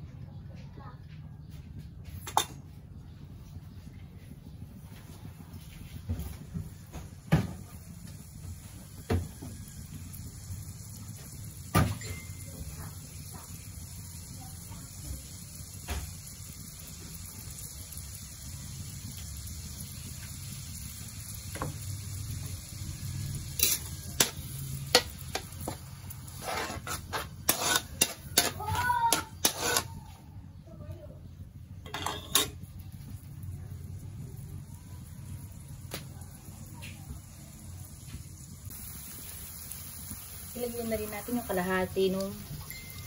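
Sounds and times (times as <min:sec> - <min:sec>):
low steady background hum: 0:00.0 - 0:43.0
metal spatula scraping a wok: 0:23.3 - 0:30.0, 0:31.8 - 0:32.7.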